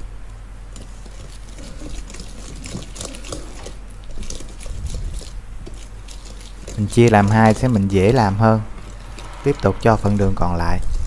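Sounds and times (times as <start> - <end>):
butter squishing: 0.6 - 9.2
whisk scraping metal bowl: 0.9 - 9.4.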